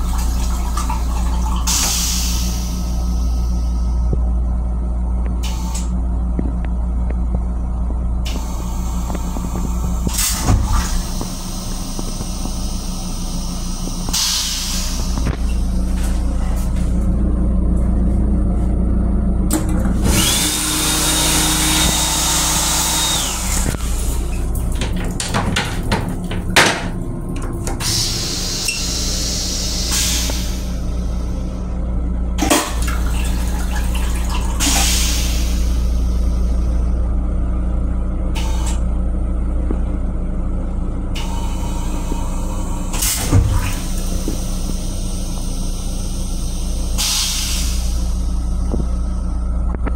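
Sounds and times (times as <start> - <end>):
railcar low hum: 0.0 - 49.9
sink running with high whine: 0.0 - 49.9
clicks and knocks: 24.6 - 27.8.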